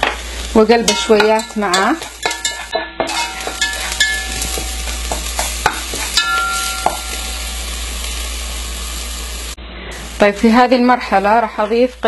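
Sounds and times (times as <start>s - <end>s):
onion sizzling in hot oil: 0.0s - 12.0s
spatula scraping and tapping pan: 0.8s - 7.3s.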